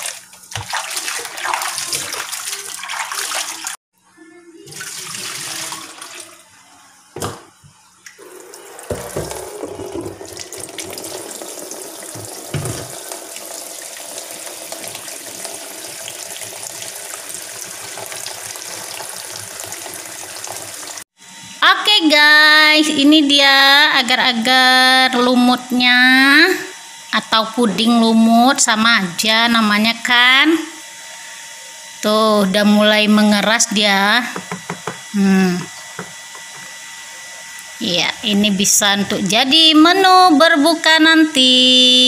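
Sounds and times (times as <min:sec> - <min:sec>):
kitchen tap running: 0:00.0 - 0:03.8, 0:04.6 - 0:06.5, 0:08.0 - 0:21.1, 0:34.2 - 0:37.8
water splashing in a basin: 0:00.0 - 0:03.8, 0:04.7 - 0:06.5, 0:08.1 - 0:21.0
knock: 0:34.4 - 0:35.1.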